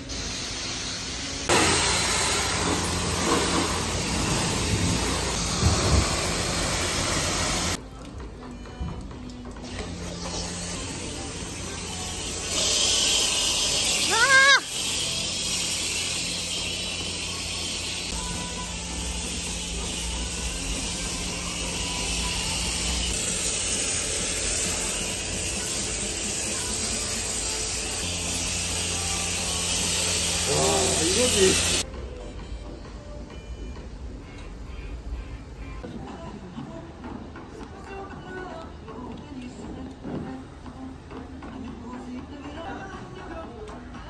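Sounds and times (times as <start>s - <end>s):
high-pressure water spraying: 0.0s - 7.8s, 9.6s - 31.8s.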